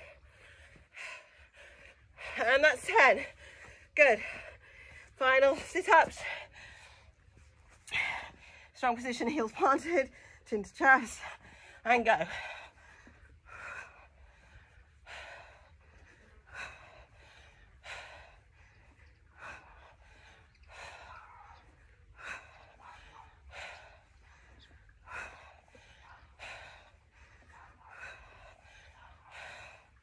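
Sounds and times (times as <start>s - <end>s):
woman breathing hard: 11.2s - 30.0s.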